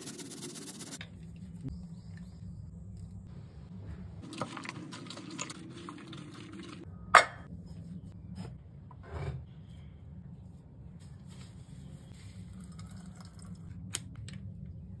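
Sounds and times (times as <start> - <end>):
rustling and scraping: 9.0 - 12.5.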